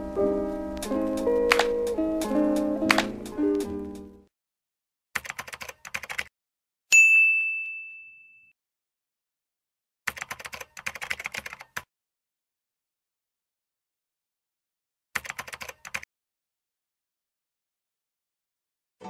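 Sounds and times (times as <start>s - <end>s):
rapid keyboard key clicks: 1.5s - 2.0s, 5.2s - 6.3s, 10.1s - 11.9s, 15.2s - 16.0s
bell ding: 6.9s - 8.6s.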